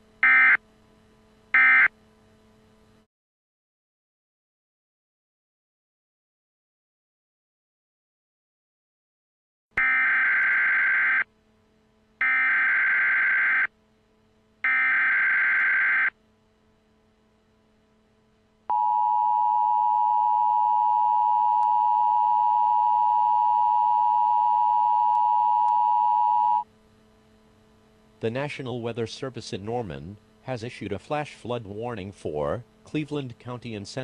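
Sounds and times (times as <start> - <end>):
steady two-tone alert signal: 1.6 - 1.9.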